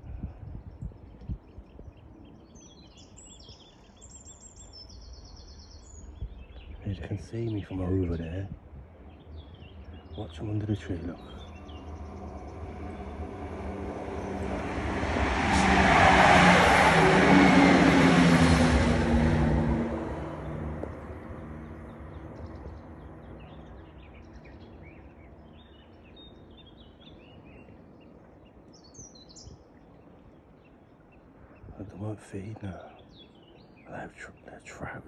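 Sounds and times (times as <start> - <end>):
car passing by: 10.8 - 24.2.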